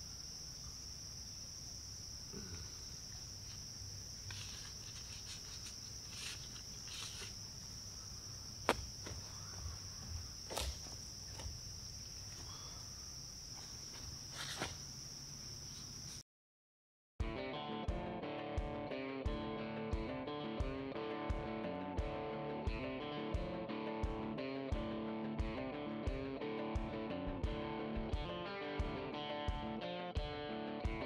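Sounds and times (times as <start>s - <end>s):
insect drone: 0.0s - 16.2s.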